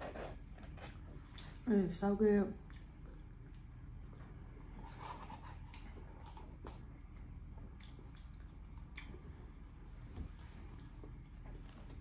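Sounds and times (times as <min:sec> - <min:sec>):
person chewing: 0:02.6 - 0:09.6.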